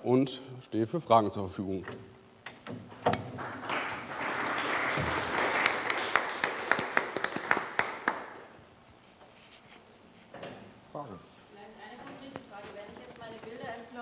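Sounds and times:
audience applauding: 0:03.3 - 0:08.5.

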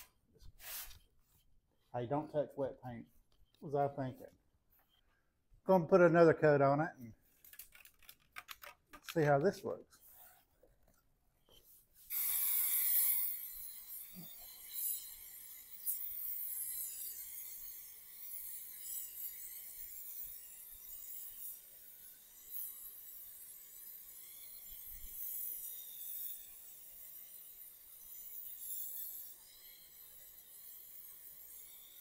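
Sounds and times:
aerosol can spraying: 0:12.1 - 0:15.0.

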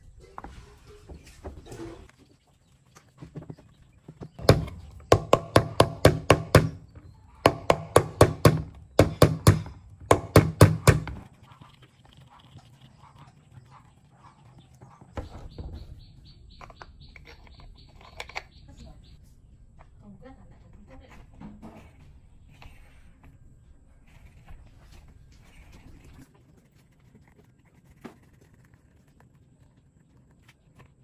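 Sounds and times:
knocks on plastic fan parts: 0:04.4 - 0:06.8, 0:07.4 - 0:11.2.

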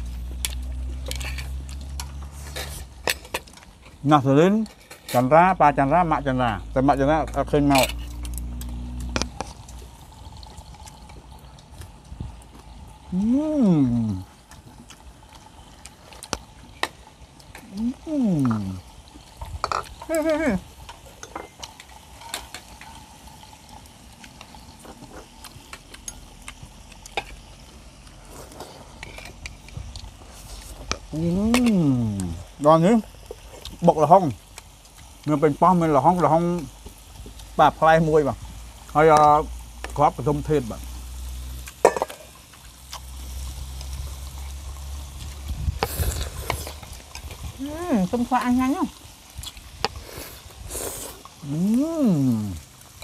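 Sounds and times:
low steady rumble: 0:00.0 - 0:21.0
meat sizzling on a grill plate: 0:00.0 - 0:53.0.

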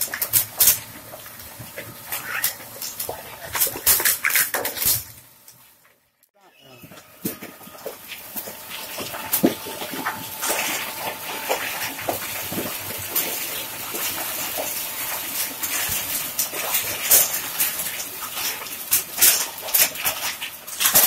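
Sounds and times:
plastic cracking and crunching: 0:00.0 - 0:05.8, 0:07.2 - 0:21.0
faint steady whine: 0:04.8 - 0:21.0
shredder grinding plastic: 0:06.7 - 0:21.0.

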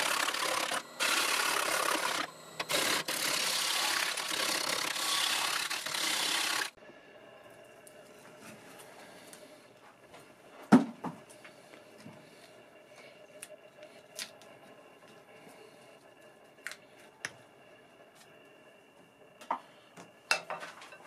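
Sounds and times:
lathe tool cutting wood: 0:00.0 - 0:06.8.

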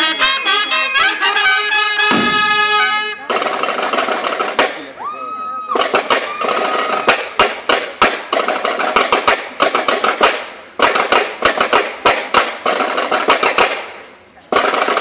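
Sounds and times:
snare drums playing cadence: 0:00.8 - 0:03.2.

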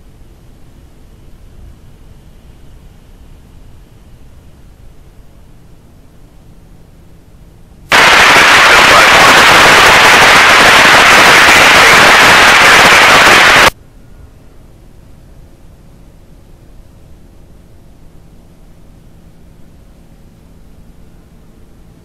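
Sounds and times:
radio scanner static: 0:07.9 - 0:13.7.

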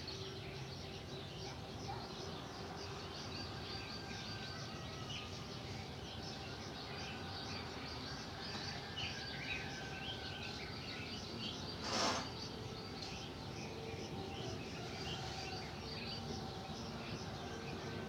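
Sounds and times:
birds chirping: 0:00.0 - 0:18.0
cat rustling past: 0:11.8 - 0:12.4.

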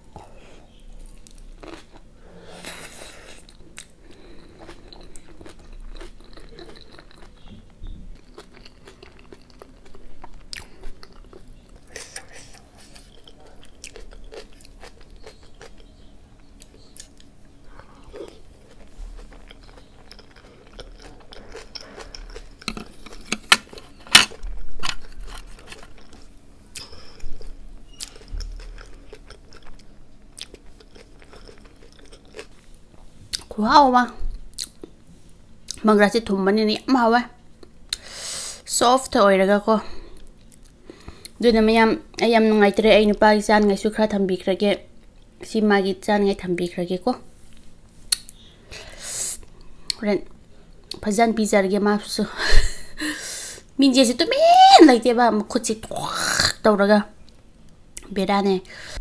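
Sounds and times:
person chewing crunchy food: 0:00.2 - 0:33.5, 0:34.4 - 0:35.0.

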